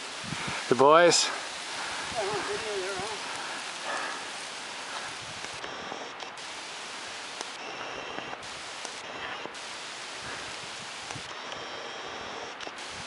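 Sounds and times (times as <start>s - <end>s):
tyres hissing on wet asphalt: 0.0s - 13.0s
faint clicks: 7.3s - 9.6s, 11.0s - 12.8s.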